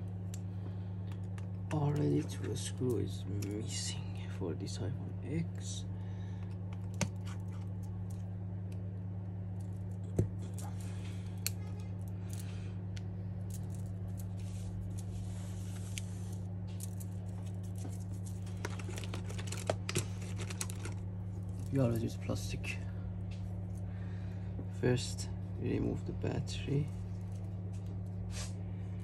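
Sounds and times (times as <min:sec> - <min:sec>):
low hum: 0:00.0 - 0:29.0
metal parts clicking and scraping: 0:13.4 - 0:22.1.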